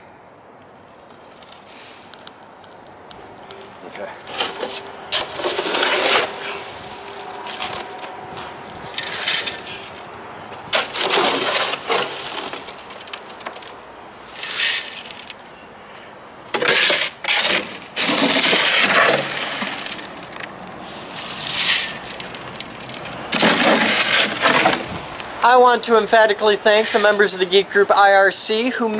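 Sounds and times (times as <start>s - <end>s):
shovel scraping gritty fill: 4.3s - 7.9s, 8.9s - 10.0s, 10.7s - 13.3s, 16.5s - 22.4s, 23.3s - 25.0s, 26.6s - 27.3s.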